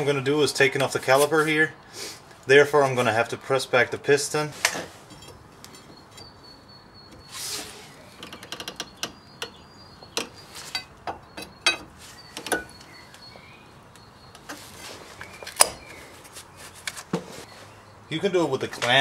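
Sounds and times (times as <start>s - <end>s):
sharp metallic clicks and knocks: 8.2s - 12.9s.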